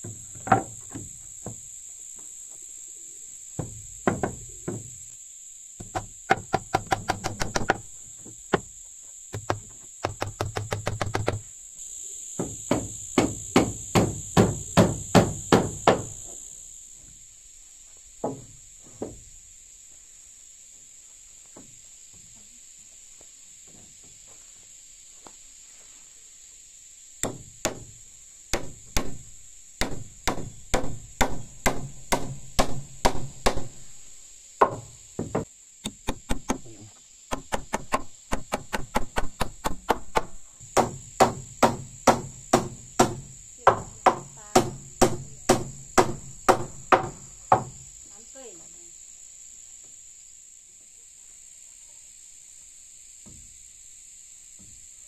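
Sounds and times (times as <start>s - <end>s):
hammer driving nails into wood: 5.9s - 7.8s, 9.4s - 11.4s, 28.5s - 29.2s, 29.8s - 33.7s, 34.6s - 36.7s, 37.3s - 43.3s.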